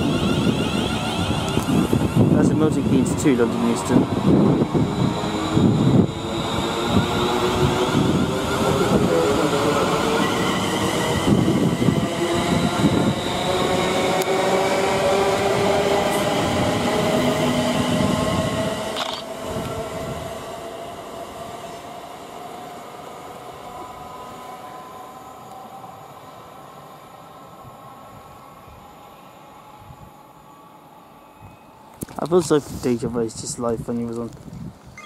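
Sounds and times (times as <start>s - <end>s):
traction motor whine: 0.0s - 12.0s
train wheels rumbling on track: 0.0s - 22.8s.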